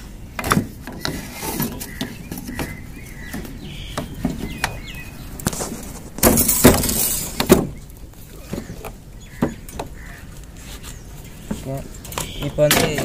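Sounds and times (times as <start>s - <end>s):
birds chirping: 0.0s - 13.0s
handling knocks and clicks: 11.4s - 13.0s.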